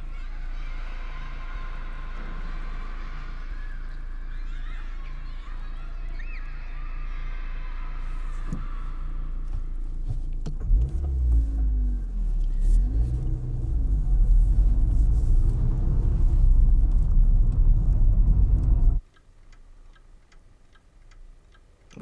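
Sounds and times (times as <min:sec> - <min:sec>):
road rumble inside car: 0:08.1 - 0:19.0
car engine accelerating: 0:10.0 - 0:19.0.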